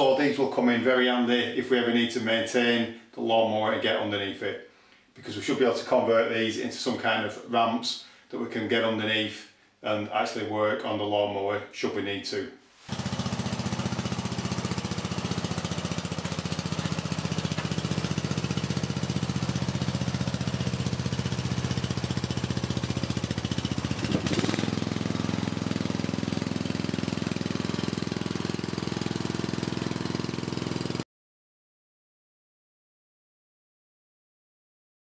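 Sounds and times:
lawn mower engine running: 12.9 - 31.0.

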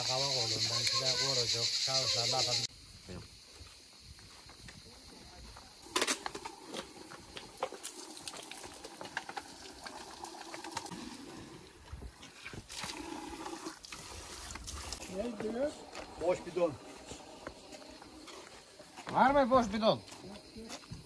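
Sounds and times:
water pouring: 5.8 - 17.7.

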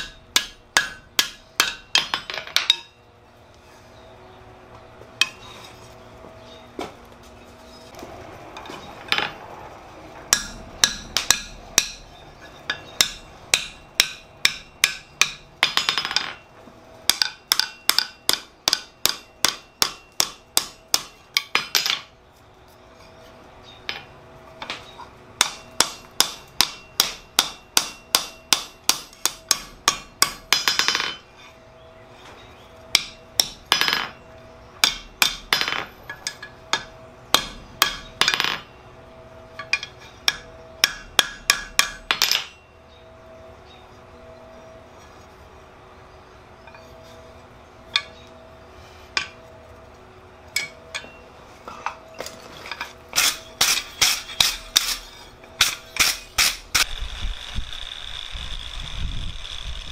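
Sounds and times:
hammer striking metal on anvil: 0.0 - 3.0, 10.3 - 16.4, 17.1 - 22.0, 25.4 - 31.2, 34.8 - 38.8, 39.5 - 42.6, 50.5 - 51.2, 51.8 - 56.9.

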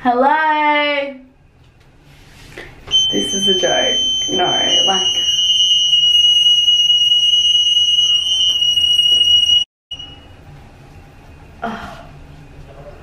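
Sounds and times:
high-pitched alarm tone: 2.9 - 10.3.

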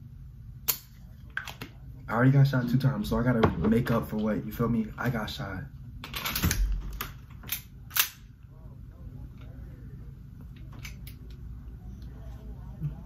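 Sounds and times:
pistol slide snapping: 7.5 - 8.2.

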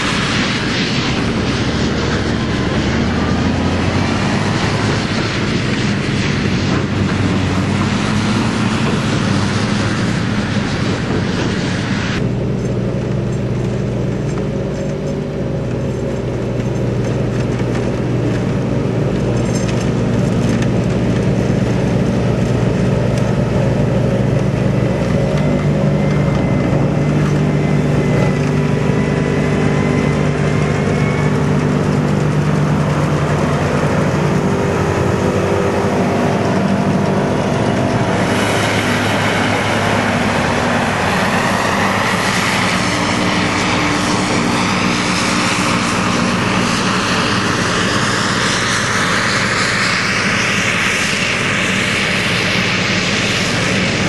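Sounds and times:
loud rushing hiss: 0.0 - 17.3, 17.9 - 54.0
engine drone: 0.0 - 54.0.

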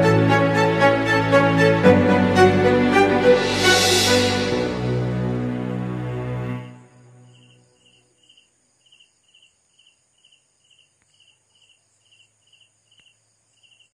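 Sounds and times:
cricket chirping: 6.7 - 14.0.

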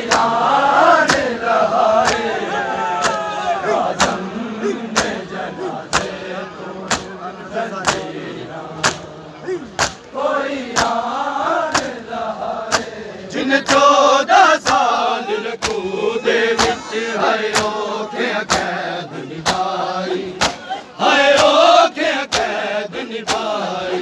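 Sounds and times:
chest slaps in unison: 0.0 - 0.4, 1.0 - 1.4, 2.0 - 2.4, 3.0 - 4.3, 4.9 - 5.3, 5.9 - 6.2, 6.8 - 7.2, 7.8 - 8.2, 8.8 - 11.0, 11.7 - 12.0, 12.6 - 13.0, 14.6 - 15.0, 15.6 - 15.8, 16.5 - 16.9, 17.5 - 17.8, 18.4 - 18.8, 19.4 - 21.6, 22.3 - 22.6, 23.2 - 23.5
men chanting together: 0.0 - 24.0.

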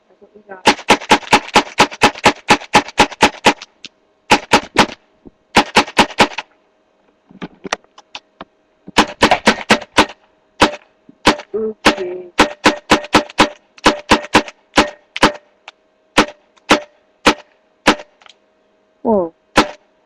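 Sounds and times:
paintball gun firing rapid shots: 0.6 - 3.7, 4.3 - 6.5, 8.9 - 15.5, 16.2 - 18.2, 19.5 - 19.8.

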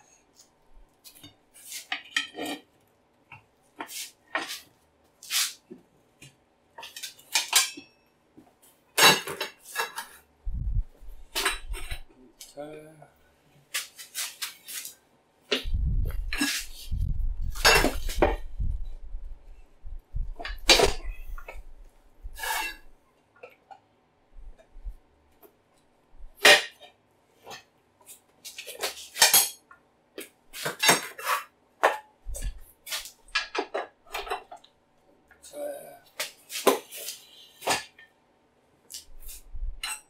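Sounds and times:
low rumbling scrape: 10.5 - 11.3, 15.7 - 22.8.

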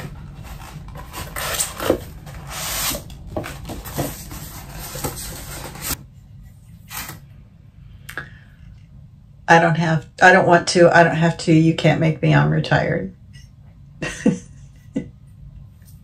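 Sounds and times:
packaging rustling and crinkling: 0.0 - 6.0.

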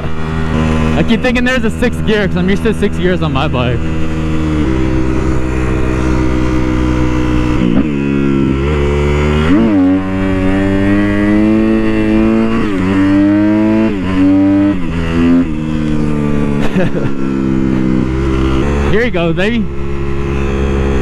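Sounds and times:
motorcycle engine shifting gears: 0.0 - 21.0.

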